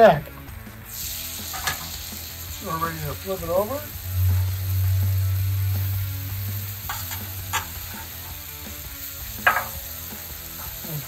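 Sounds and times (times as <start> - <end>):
vegetables sizzling on a griddle: 0.0 - 11.0
metal spatula scraping griddle: 1.5 - 2.0, 4.2 - 5.1, 6.8 - 8.4, 9.4 - 9.8
low rumble: 3.2 - 8.2.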